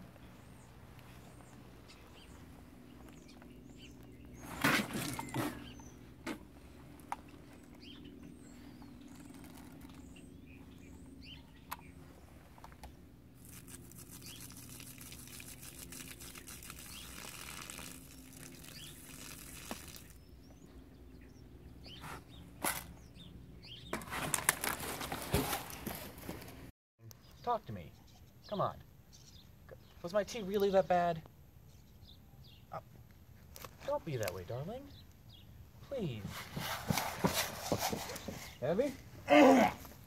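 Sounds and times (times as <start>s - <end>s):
small bird chirps: 7.3s - 12.1s, 13.4s - 24.0s.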